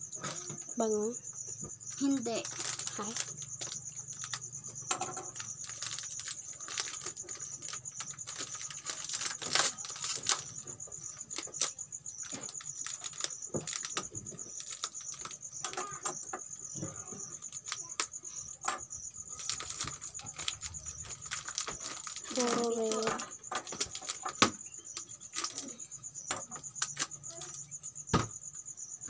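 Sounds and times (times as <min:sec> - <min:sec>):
plastic wrapping crinkling: 0:02.0 - 0:04.4, 0:05.1 - 0:15.8, 0:19.3 - 0:24.5.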